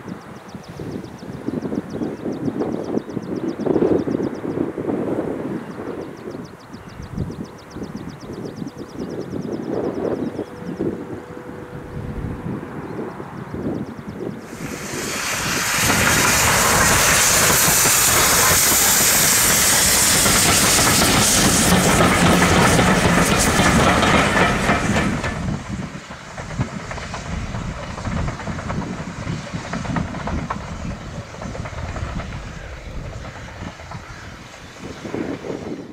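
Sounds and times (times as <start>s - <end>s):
train rumble: 3.7s - 35.9s
steam locomotive hissing: 14.4s - 35.9s.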